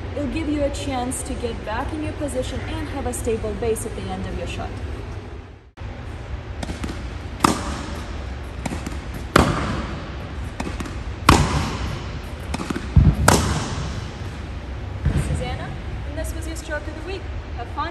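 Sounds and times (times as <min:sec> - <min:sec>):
low steady rumble: 0:00.0 - 0:17.9
racket hitting tennis ball: 0:06.6 - 0:15.2.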